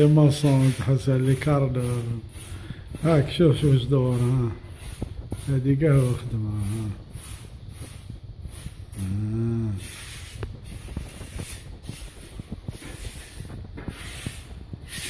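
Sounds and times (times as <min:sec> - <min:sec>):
steady hiss: 0:00.0 - 0:15.0
wordless voice sound: 0:03.0 - 0:04.6, 0:05.4 - 0:07.0, 0:09.0 - 0:10.0.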